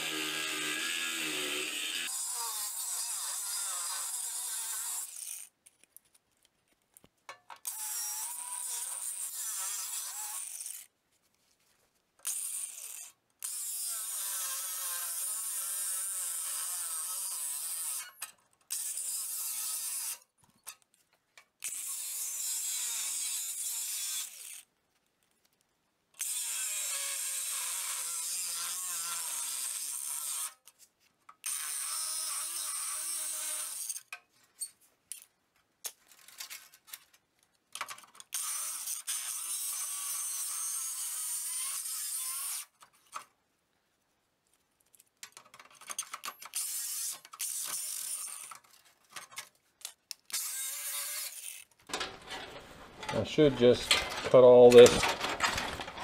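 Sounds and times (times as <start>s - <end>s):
angle grinder cutting sheet metal: 0.0s - 5.4s, 7.7s - 10.8s, 12.3s - 18.2s, 26.2s - 30.6s, 31.5s - 34.0s, 38.4s - 42.7s, 50.3s - 56.0s.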